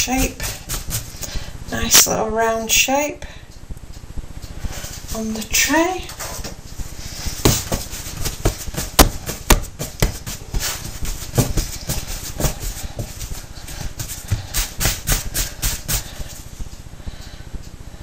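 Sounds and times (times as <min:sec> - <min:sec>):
hands slapping dough on counter: 0:07.4 - 0:16.1.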